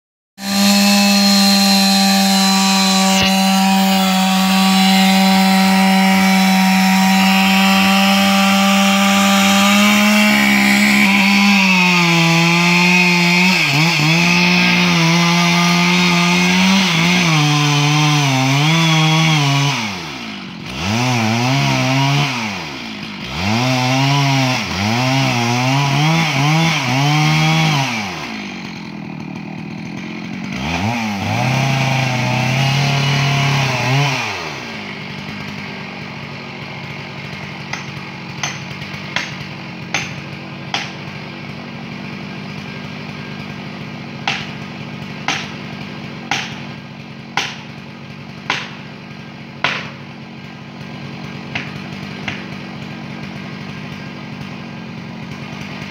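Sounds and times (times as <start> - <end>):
chainsaw cutting wood: 0.4 - 55.9.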